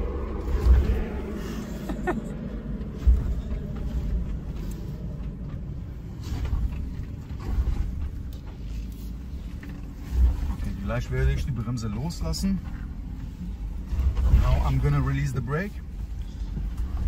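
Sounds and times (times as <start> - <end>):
low rumble inside vehicle cabin: 0.0 - 17.0.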